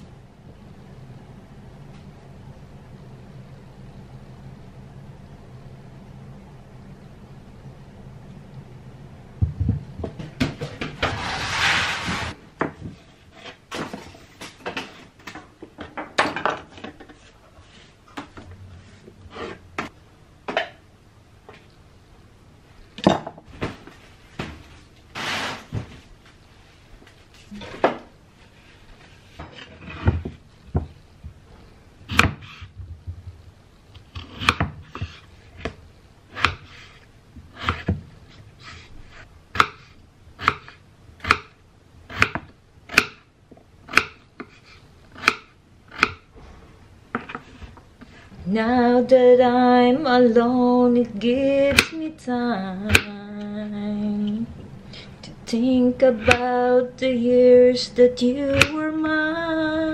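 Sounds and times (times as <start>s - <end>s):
knife chopping on cutting board: 32.1s - 32.7s, 34.2s - 35.2s, 37.6s - 38.0s, 39.6s - 43.2s, 45.2s - 46.2s.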